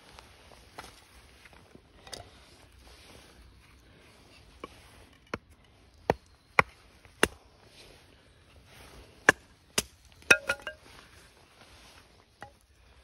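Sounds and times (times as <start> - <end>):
hatchet chopping kindling: 6.0 - 7.4, 9.2 - 10.8.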